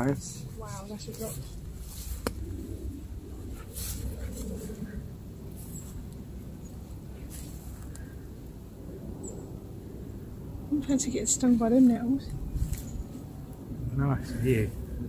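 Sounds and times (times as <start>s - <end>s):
grass rustling while walking: 0.0s - 8.2s
wind noise on microphone: 11.9s - 15.0s.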